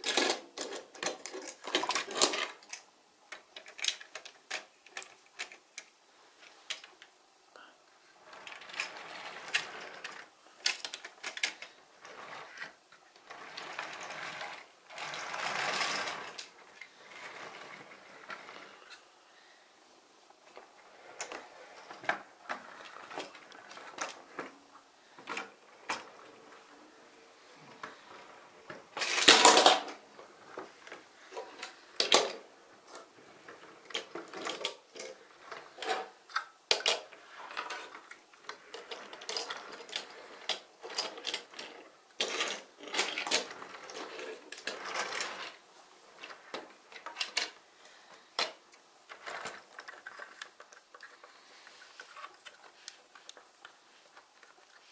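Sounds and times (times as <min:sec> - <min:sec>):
plastic toy clatter: 0:00.0 - 0:07.1, 0:08.3 - 0:19.0, 0:28.9 - 0:30.0, 0:31.3 - 0:33.1, 0:33.8 - 0:45.6, 0:46.2 - 0:47.6, 0:48.2 - 0:54.9
plastic toy parts clicking and rattling: 0:00.0 - 0:07.1, 0:08.3 - 0:16.9, 0:29.0 - 0:30.0, 0:30.8 - 0:33.1, 0:33.8 - 0:45.6, 0:46.2 - 0:54.9.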